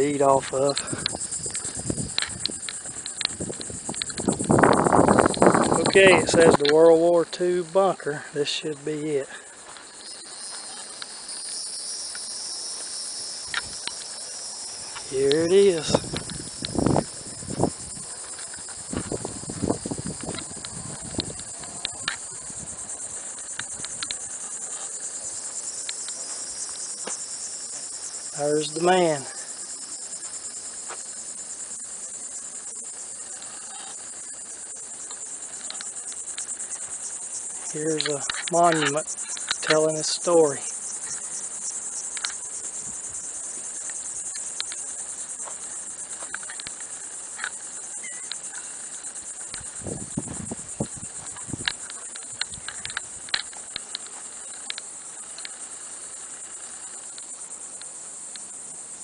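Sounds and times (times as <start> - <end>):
insects chorus: 0.0 - 59.0
faint clicks: 0.8 - 6.8, 23.4 - 24.2, 51.6 - 55.6.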